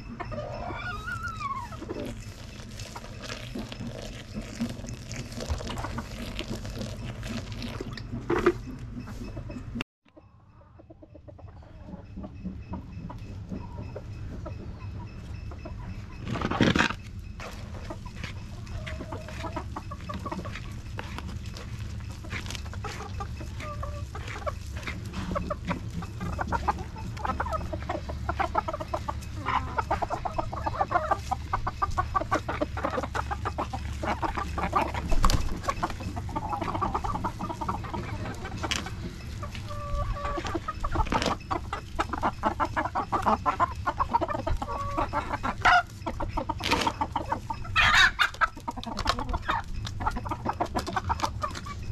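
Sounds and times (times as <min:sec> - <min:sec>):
chickens clucking: 0:00.0 - 0:51.9
clicks and scrapes at bucket: 0:01.8 - 0:08.8.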